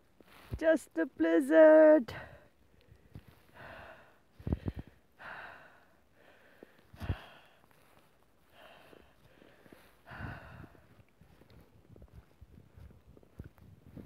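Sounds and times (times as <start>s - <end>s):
wading through deep snow: 0.0s - 1.9s, 6.4s - 14.0s
person breathing hard: 2.2s - 11.0s.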